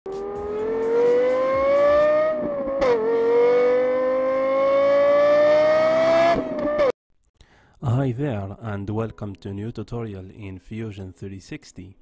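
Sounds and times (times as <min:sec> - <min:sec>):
car engine accelerating hard: 0:00.2 - 0:06.9.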